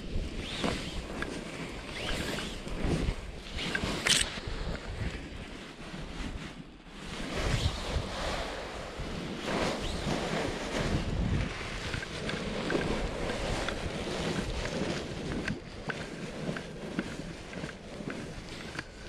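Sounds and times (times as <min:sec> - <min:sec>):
wind rushing over microphone: 0:00.0 - 0:19.0.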